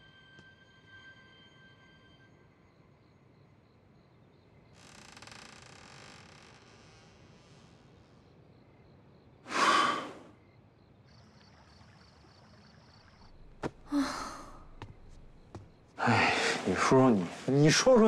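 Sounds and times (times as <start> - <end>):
person sighing heavily: 13.8 - 14.7.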